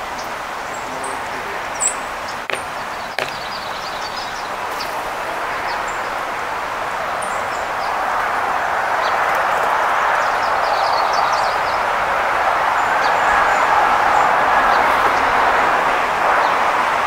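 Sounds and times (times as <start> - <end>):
outdoor background rush: 0.0 - 17.0
high bird chirps: 1.8 - 4.4
sharp taps: 2.5 - 3.6.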